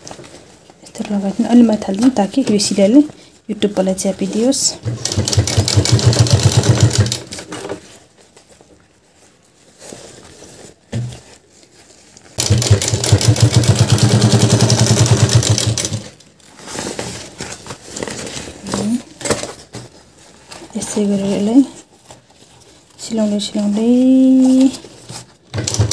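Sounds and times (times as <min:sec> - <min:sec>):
sewing machine stitching: 0:04.8 - 0:07.5, 0:12.4 - 0:16.2, 0:25.5 - 0:25.9
soft handling noises: 0:07.4 - 0:12.4, 0:16.2 - 0:25.5.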